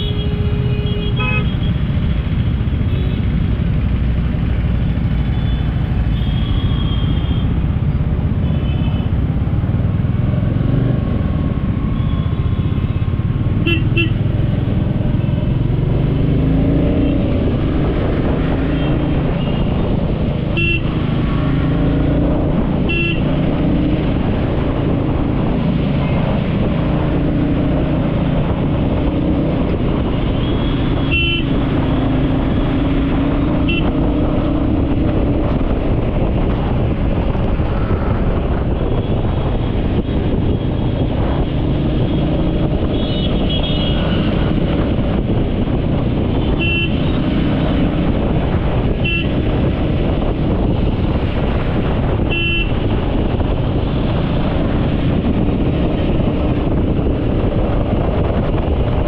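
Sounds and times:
traffic rumble: 0:00.0 - 0:59.0
car horn toots: 0:46.5 - 0:47.2, 0:49.0 - 0:49.4, 0:52.2 - 0:52.8.

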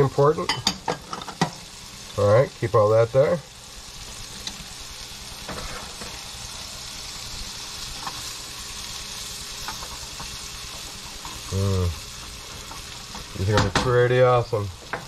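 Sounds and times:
mushrooms sizzling in butter: 0:00.0 - 0:15.0
spatula scraping skillet: 0:05.4 - 0:06.4, 0:09.4 - 0:13.6.

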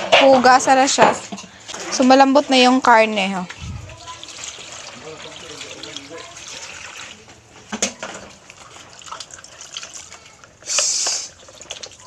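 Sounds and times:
hands squelching and splashing water: 0:08.4 - 0:12.0.

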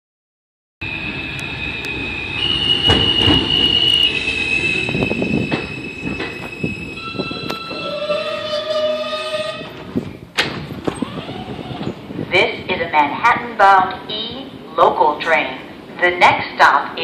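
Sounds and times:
train wheels squealing: 0:00.8 - 0:09.6
subway train braking: 0:00.8 - 0:12.2.

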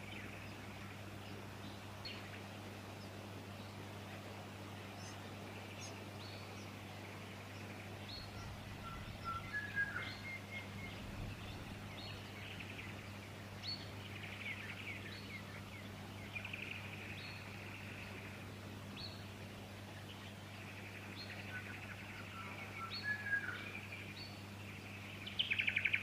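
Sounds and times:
steady low hum: 0:00.0 - 0:26.0
whistled bird notes: 0:08.2 - 0:11.6.

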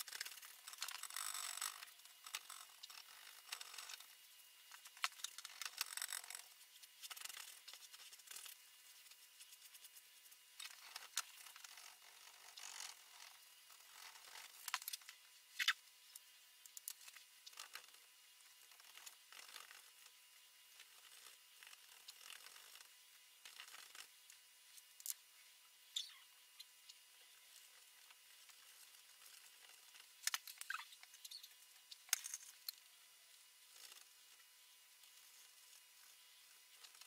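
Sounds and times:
paintbrush scrubbing on canvas: 0:06.5 - 0:10.4.

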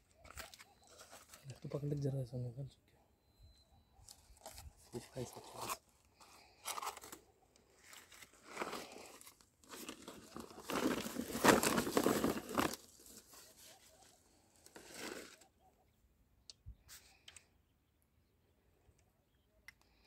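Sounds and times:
rustling and crinkling handling: 0:00.0 - 0:02.2, 0:04.0 - 0:15.5.

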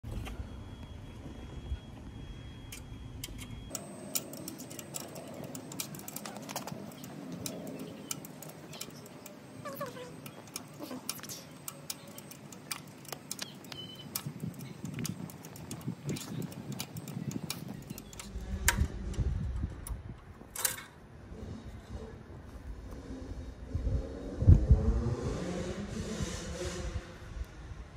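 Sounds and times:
allen key clicking on bolt: 0:03.2 - 0:21.0.

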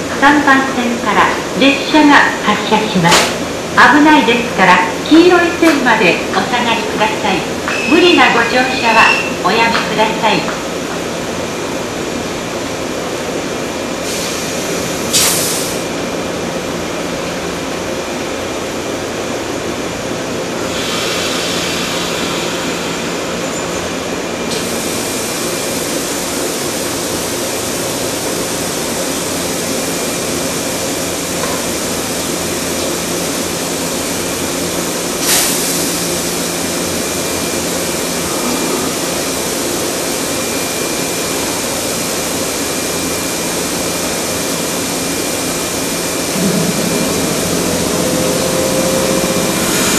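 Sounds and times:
electric train humming: 0:00.0 - 0:49.9
short air hisses: 0:15.1 - 0:15.8.

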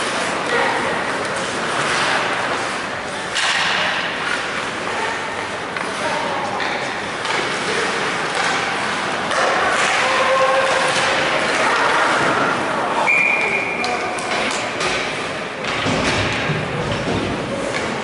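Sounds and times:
hockey sticks and puck knocking: 0:03.3 - 0:04.6.

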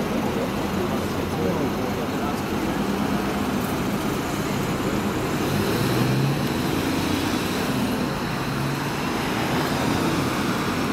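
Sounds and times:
diesel coach engine: 0:00.0 - 0:10.9
road traffic hiss: 0:00.0 - 0:10.9.

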